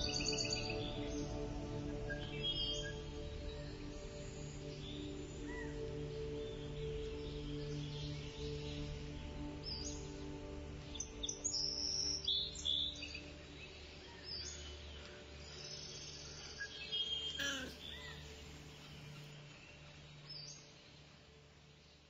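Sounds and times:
bird chirps: 0:16.7 - 0:19.3.

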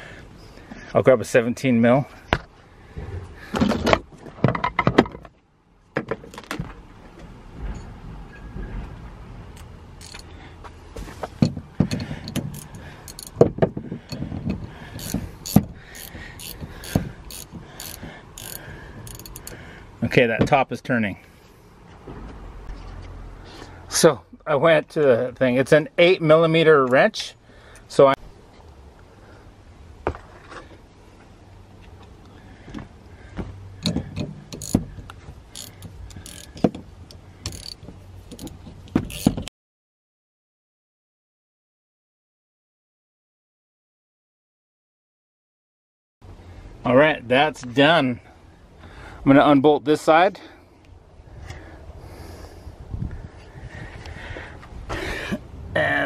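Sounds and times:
ratchet wrench clicking: 0:10.0 - 0:10.3, 0:11.9 - 0:13.4, 0:15.0 - 0:19.6, 0:33.8 - 0:34.8, 0:35.5 - 0:36.6, 0:37.4 - 0:39.4
metal clinks and knocks: 0:11.4 - 0:19.6, 0:37.4 - 0:39.5.

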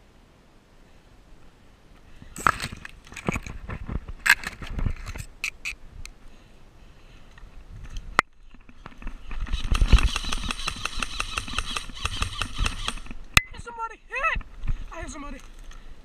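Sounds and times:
dry grass crackling and scraping: 0:01.4 - 0:05.8.

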